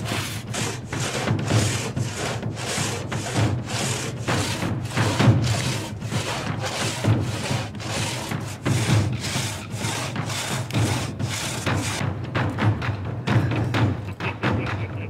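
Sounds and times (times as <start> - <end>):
hand saw cutting through a log: 0.0 - 12.0.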